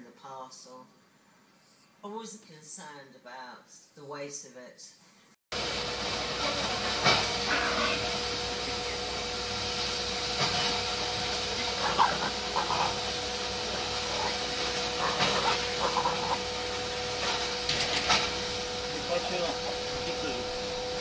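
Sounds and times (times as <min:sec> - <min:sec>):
steady hum: 0:05.6 - 0:21.0.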